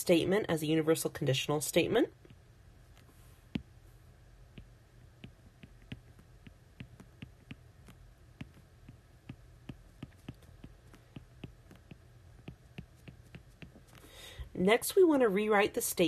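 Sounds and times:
low steady hum: 0.0 - 16.0
stylus tapping on tablet screen: 2.2 - 3.8, 4.5 - 14.1.

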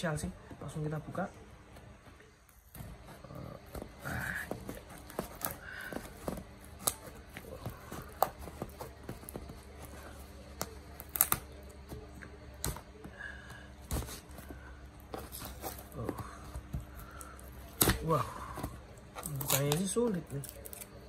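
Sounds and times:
scissors cutting cardboard: 2.7 - 12.8.

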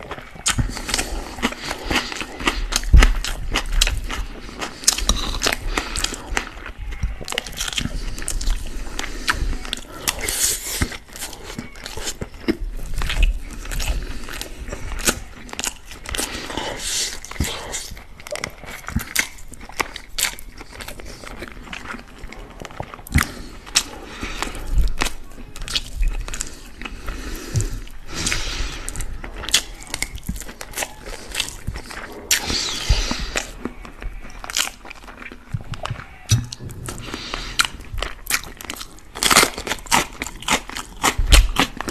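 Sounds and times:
close chewing and mouth sounds: 0.0 - 41.9.

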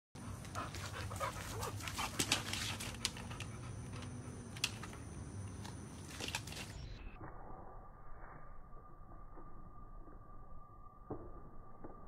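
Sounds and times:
dog panting: 0.2 - 4.4
sharp clicks and scuffs: 0.4 - 6.9.

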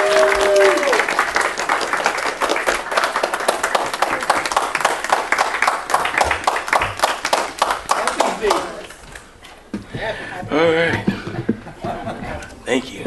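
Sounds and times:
congregation applauding: 0.0 - 9.3.

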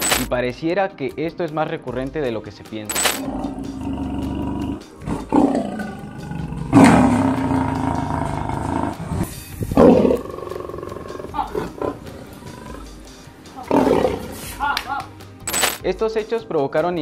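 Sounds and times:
lion roaring: 3.2 - 14.6.

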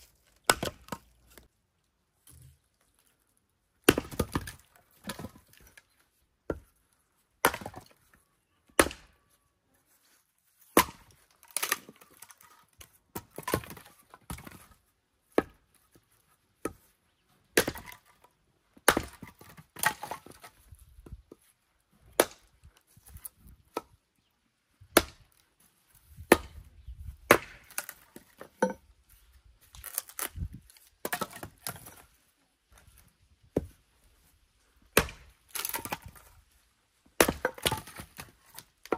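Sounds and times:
axe chopping firewood: 0.0 - 1.5, 3.8 - 5.8, 6.4 - 8.1, 8.7 - 9.2, 10.6 - 15.8, 16.6 - 16.9, 17.5 - 21.4, 22.0 - 24.0, 24.8 - 25.4, 26.1 - 28.8, 29.6 - 32.0, 34.9 - 36.4, 37.1 - 38.9
wood splitting crackle: 0.0 - 1.5, 10.6 - 14.8, 27.3 - 28.8, 29.6 - 32.1, 34.9 - 36.4, 37.2 - 38.9.

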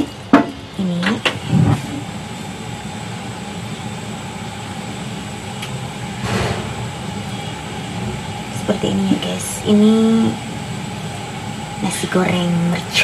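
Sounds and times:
gas stove burner rumble: 0.0 - 13.0
short rush of noise: 6.2 - 7.4.

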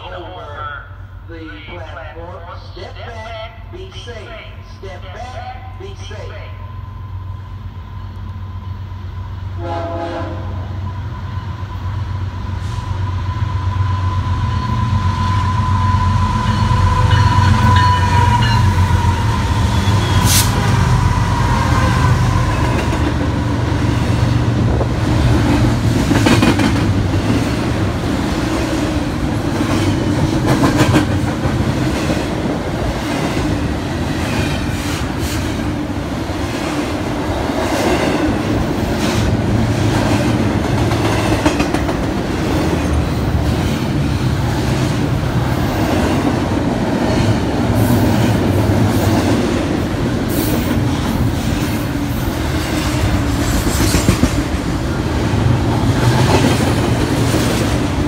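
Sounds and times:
train wheels clicking on rails: 15.0 - 58.0.

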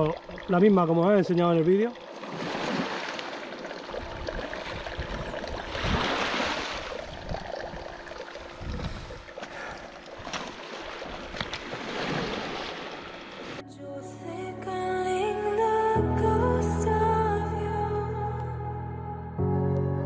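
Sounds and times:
water washing and sloshing: 0.0 - 13.6.

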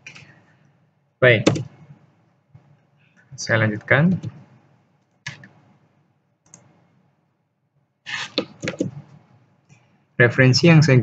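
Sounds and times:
computer mouse clicks: 5.0 - 5.6, 6.4 - 6.8, 8.3 - 9.0.

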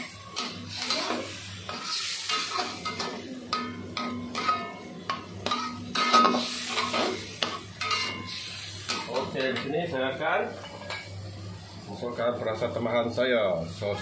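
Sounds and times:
metal spatula scraping a wok: 0.0 - 4.8, 5.4 - 9.5
liquid sizzling: 0.0 - 14.0.

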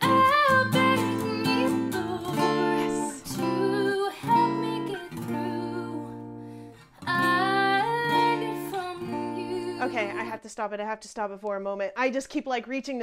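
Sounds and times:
acoustic guitar strumming chords: 0.0 - 10.4.

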